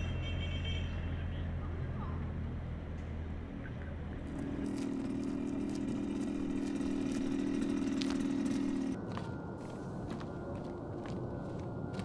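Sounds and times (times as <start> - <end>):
vehicle engine idling: 1.4 - 9.0.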